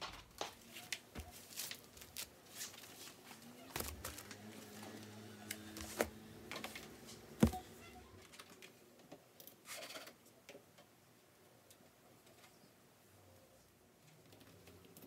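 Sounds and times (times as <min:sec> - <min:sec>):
laptop opening rustle: 0:01.2 - 0:05.0
keyboard taps: 0:07.4 - 0:07.6
books set down with knocks: 0:07.4 - 0:07.7.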